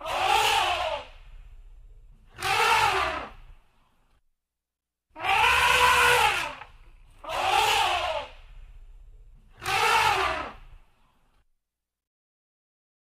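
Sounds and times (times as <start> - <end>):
elephant calf trumpeting: 0.0 - 1.2, 2.3 - 3.4, 5.2 - 8.4, 9.6 - 10.8.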